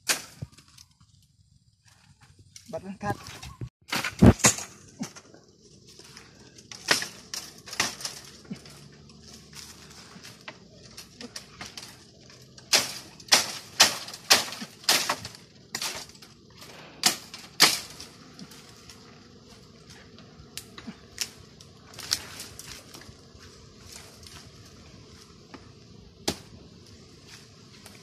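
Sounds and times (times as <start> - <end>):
bamboo twigs rustling and snapping: 0.0 - 28.0.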